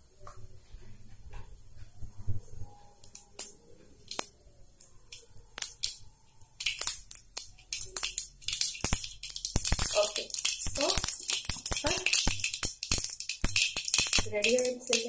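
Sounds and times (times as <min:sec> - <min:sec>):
seeds popping in hot oil: 0:03.0 - 0:15.0.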